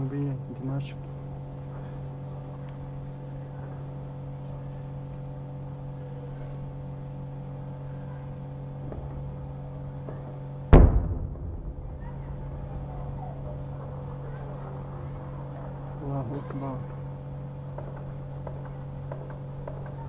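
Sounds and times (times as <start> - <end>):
steady low hum: 0.0 - 20.0
loud explosion: 10.8 - 13.8.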